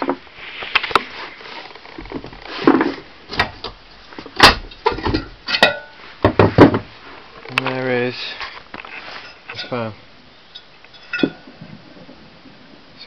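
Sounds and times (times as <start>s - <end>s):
tools knocking and rattling: 4.4s - 6.9s.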